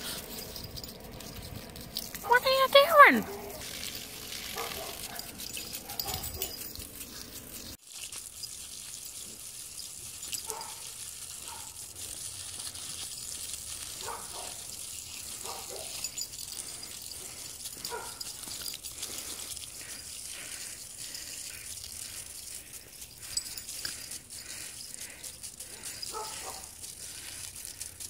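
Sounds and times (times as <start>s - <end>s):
water spraying from hose: 0.0s - 0.6s, 1.6s - 28.0s
puppy yipping: 4.5s - 7.3s, 17.8s - 18.4s.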